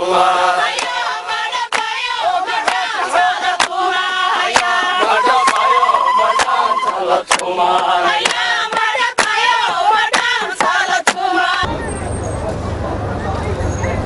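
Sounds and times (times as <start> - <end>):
group singing a chant: 0.0 - 11.7
hand claps: 0.7 - 1.0, 1.7 - 1.9, 2.6 - 2.9, 3.6 - 3.8, 4.5 - 4.8, 5.4 - 6.6, 7.3 - 11.3.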